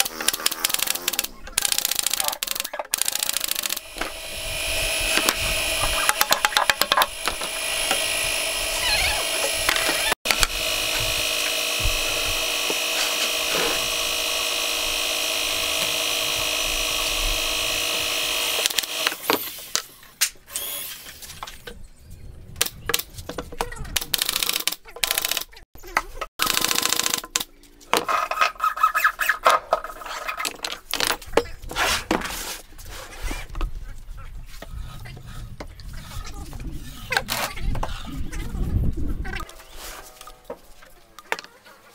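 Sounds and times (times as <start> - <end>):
air compressor motor running: 3.0 - 19.2.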